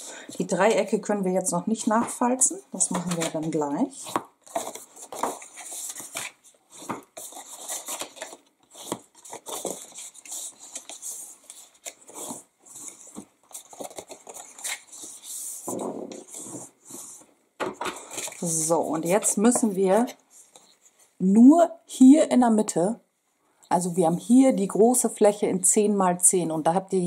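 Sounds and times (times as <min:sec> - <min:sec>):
paper rustling and crinkling: 0:02.8 - 0:21.1.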